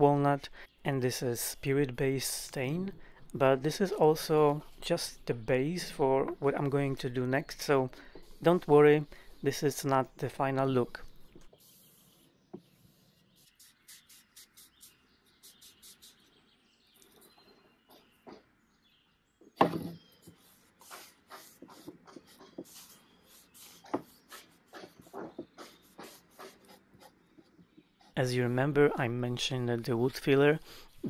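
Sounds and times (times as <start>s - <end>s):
cloth rubbing on wood: 20.3s - 27.2s.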